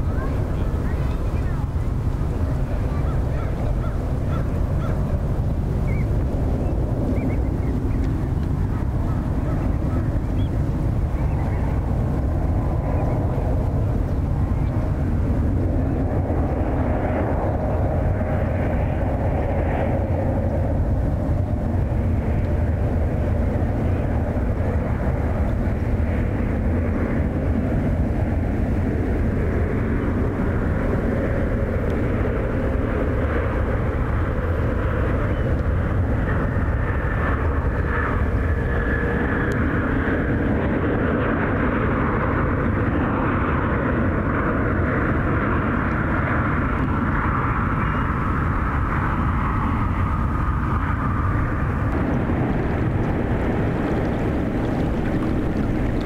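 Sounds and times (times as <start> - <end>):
jet engine whine: 0.0 - 56.0
jet engines roaring: 0.0 - 56.0.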